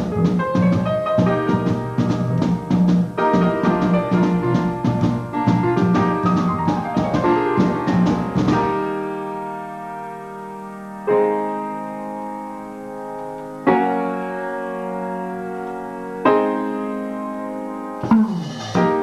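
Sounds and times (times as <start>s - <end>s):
drum kit: 0.0s - 9.2s, 18.0s - 19.0s
piano chords ringing: 0.0s - 19.0s.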